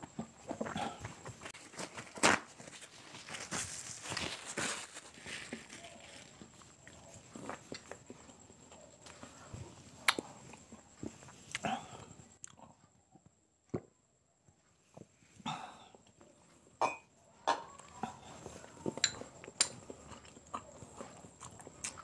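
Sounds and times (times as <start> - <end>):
wet chewing and slurping: 6.3 - 12.7, 17.9 - 22.0.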